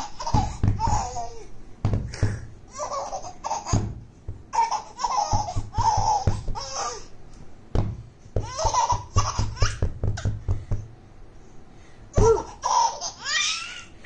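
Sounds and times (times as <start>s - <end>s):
baby giggling: 0.0s - 1.5s, 2.2s - 3.8s, 4.5s - 7.1s, 8.4s - 9.9s, 12.2s - 13.9s.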